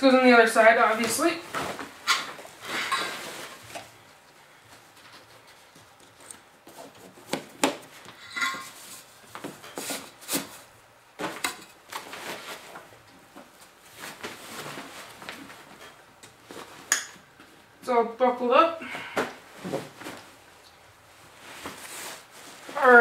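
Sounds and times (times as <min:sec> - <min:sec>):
fabric rustling: 0:07.9 - 0:16.9, 0:19.0 - 0:23.0.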